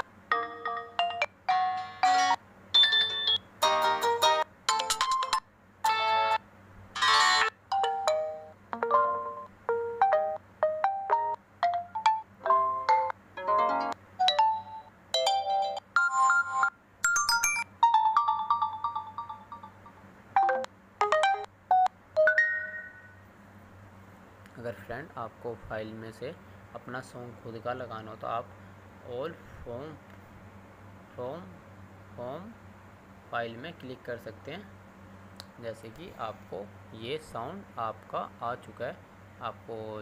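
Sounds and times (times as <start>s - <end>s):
short melodic ringtone phrases: 0.3s - 6.4s, 7.0s - 23.2s.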